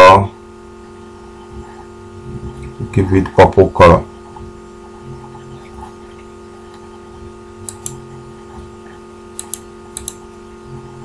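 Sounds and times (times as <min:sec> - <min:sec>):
steady electrical hum: 0:00.0 - 0:11.0
computer mouse clicking: 0:07.6 - 0:08.0, 0:09.3 - 0:10.2.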